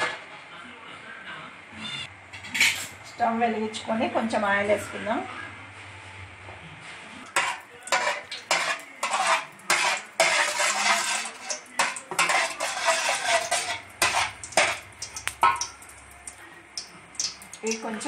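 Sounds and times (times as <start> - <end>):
metal spatula scraping a pan: 7.3 - 15.7.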